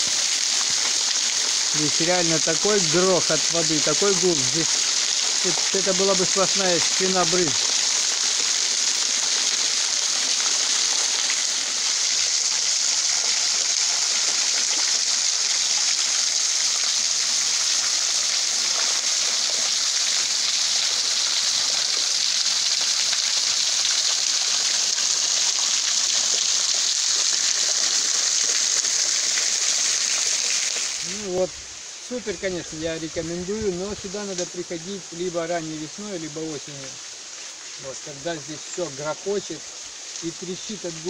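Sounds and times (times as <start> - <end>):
water splashing onto rocks: 0.0 - 12.6.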